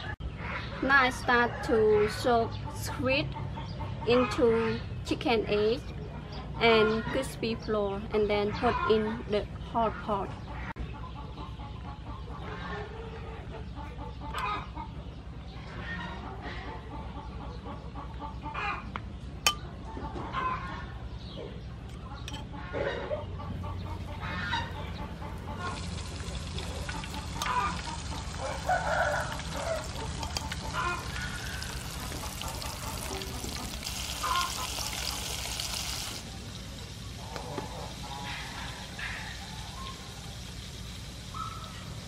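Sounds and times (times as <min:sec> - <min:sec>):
chickens clucking: 0:05.8 - 0:42.0
squid frying in oil: 0:25.2 - 0:42.0.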